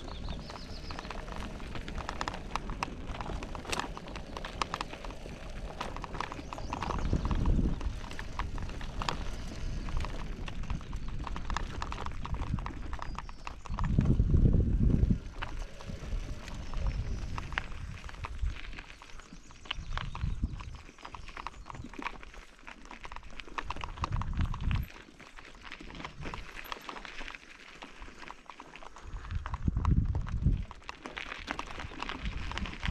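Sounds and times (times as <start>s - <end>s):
low rumble on microphone: 0.0s - 21.9s, 29.0s - 30.8s
footsteps crunching on gravel: 0.0s - 32.9s.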